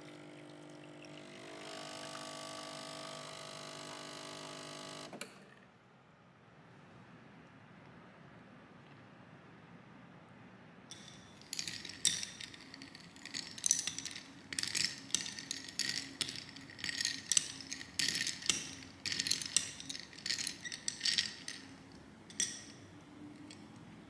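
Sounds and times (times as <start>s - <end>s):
hard objects clicking and clinking: 10.9s - 24.0s.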